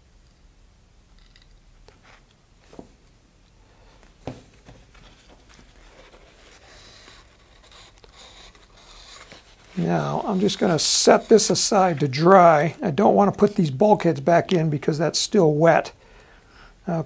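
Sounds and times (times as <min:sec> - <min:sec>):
paper towel rustling: 0:04.0 - 0:14.0.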